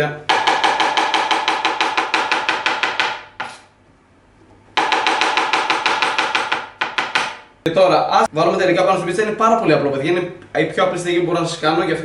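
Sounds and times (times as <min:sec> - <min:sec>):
knife chopping on cutting board: 0:00.3 - 0:03.7, 0:04.8 - 0:07.5.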